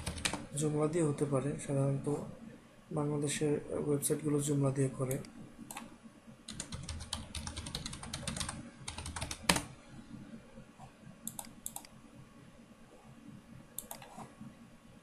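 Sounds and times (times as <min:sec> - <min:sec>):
typing on keyboard: 0:00.0 - 0:00.5, 0:06.5 - 0:09.7.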